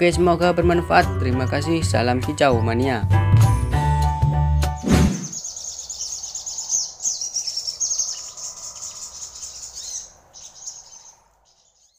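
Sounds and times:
songbird chirping and twittering: 3.8s - 11.9s.

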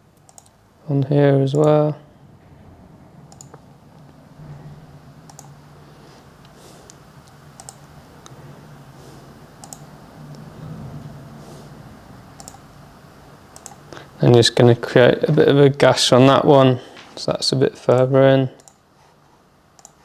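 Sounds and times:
low steady hum: 0.0s - 20.0s
computer mouse clicks: 0.2s - 0.6s, 3.3s - 3.6s, 5.3s - 5.6s, 6.4s - 8.4s, 9.6s - 10.4s, 12.4s - 12.6s, 13.5s - 13.8s, 18.6s - 18.8s, 19.8s - 20.0s.

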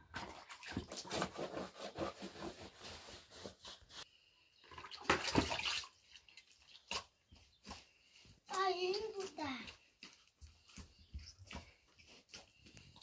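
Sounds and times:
water splashing in bucket: 0.0s - 1.4s, 4.6s - 7.2s.

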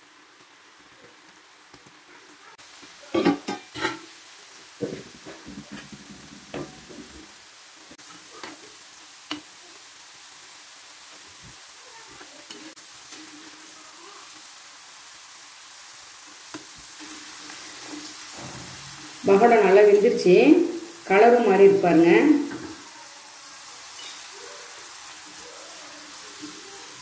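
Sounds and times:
food sizzling in hot oil: 0.0s - 27.0s
metal spoon scraping a pan: 3.2s - 4.1s.

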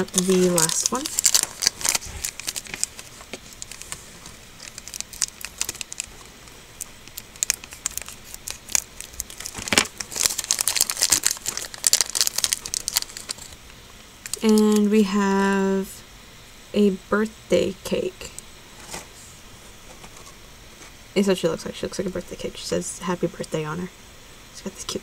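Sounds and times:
plastic bag crinkling: 0.0s - 14.9s.

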